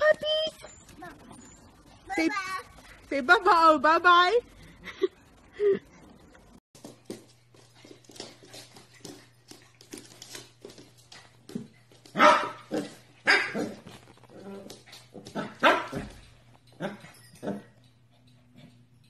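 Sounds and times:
small puppy barking: 12.2s - 13.8s.

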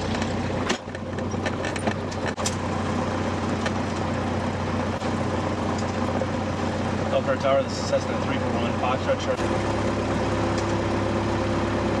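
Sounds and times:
aircraft engine idling: 0.0s - 12.0s.

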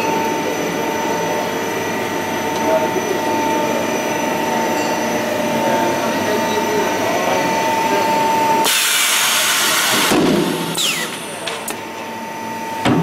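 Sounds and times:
machine humming: 0.0s - 13.0s
loud hiss: 8.6s - 11.2s.

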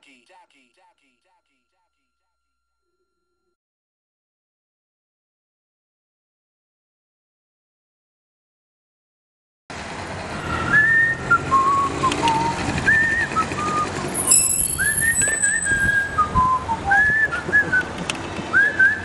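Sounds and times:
person whistling a tune: 10.7s - 17.9s, 18.5s - 19.0s.

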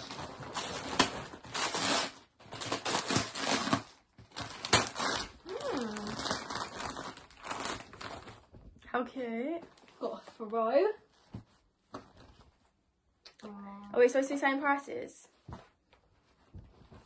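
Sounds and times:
wrapping paper tearing and crumpling: 0.0s - 8.5s.

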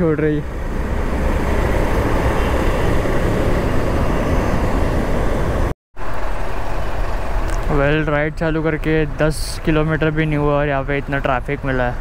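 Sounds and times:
road noise: 0.0s - 12.0s
wind rush: 0.5s - 5.7s.

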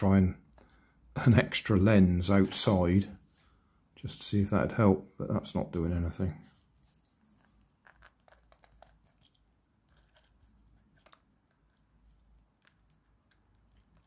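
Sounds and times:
fingers handling plastic parts: 6.9s - 14.0s.

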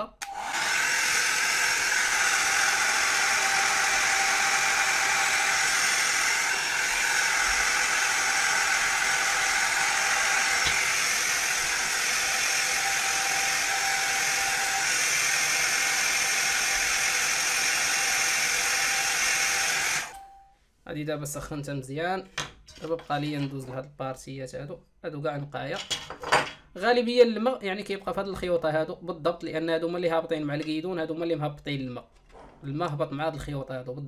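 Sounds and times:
hair dryer running: 0.2s - 20.2s.

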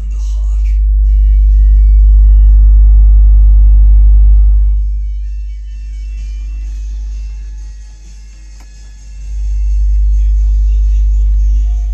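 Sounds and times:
low sine-wave test tone: 0.6s - 5.7s, 9.3s - 11.9s.

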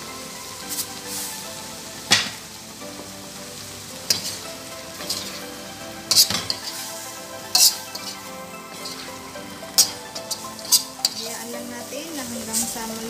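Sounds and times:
food sizzling in a wok: 0.0s - 13.0s
spatula scraping pan: 4.0s - 13.0s.

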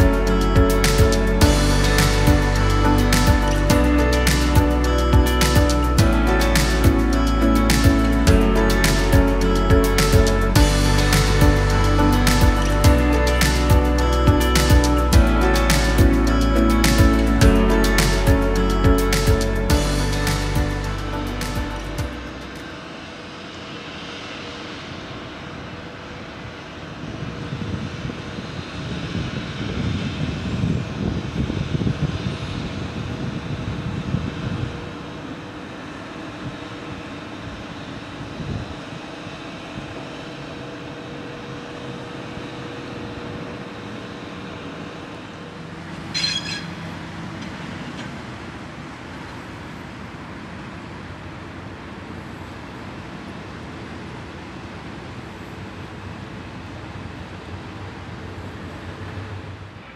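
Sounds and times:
low rumble: 0.0s - 23.4s
high-pitched squeal: 0.0s - 30.8s, 45.1s - 47.5s
locomotive hum with faint tone: 0.0s - 59.9s.

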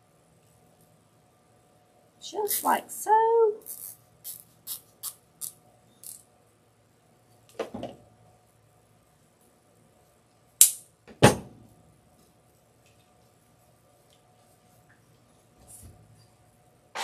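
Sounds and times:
zip tie ratcheting: 3.6s - 6.2s
sharp snaps: 10.6s - 10.9s.

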